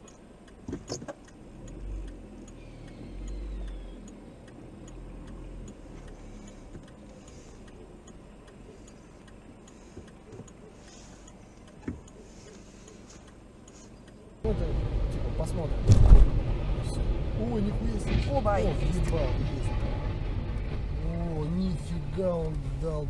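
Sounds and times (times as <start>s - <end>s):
steady ticking: 0.0s - 15.8s
car engine idling: 0.0s - 23.0s.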